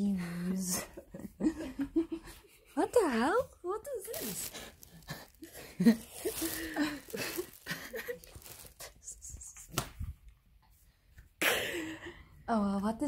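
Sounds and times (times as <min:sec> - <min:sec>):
fabric rustling: 0:03.8 - 0:09.2.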